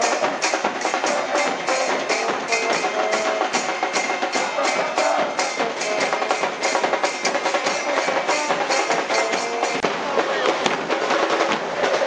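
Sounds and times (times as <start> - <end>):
crowd noise: 0.0 - 12.0
drums beating fast rhythm: 0.0 - 12.0
brass holding notes: 4.4 - 6.8, 7.6 - 9.8.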